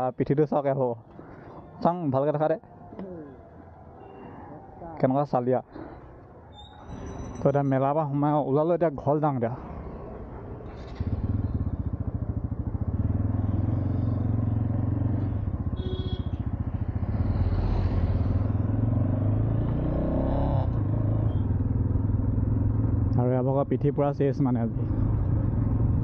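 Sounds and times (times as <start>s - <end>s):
motorcycle engine pulling away: 10.7s - 23.1s.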